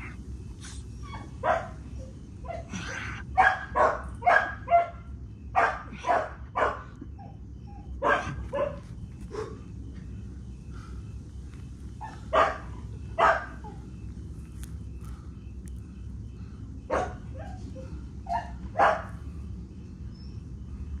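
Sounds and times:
dog barking: 1.0s - 9.7s, 11.9s - 13.9s, 16.8s - 19.4s.

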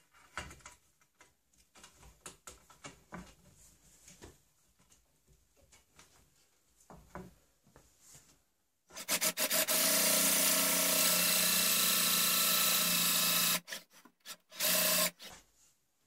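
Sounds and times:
electric drill boring wood: 8.9s - 15.3s.

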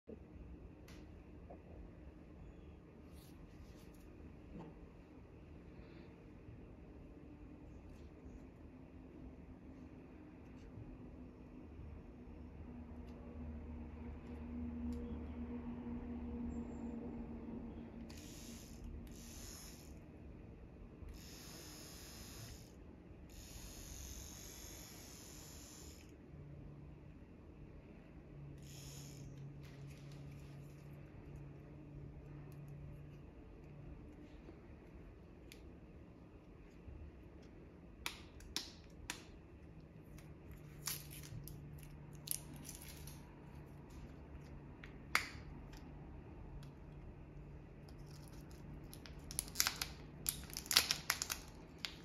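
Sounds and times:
small motor whirring: 18.0s - 20.0s, 21.1s - 26.2s, 28.6s - 29.6s.

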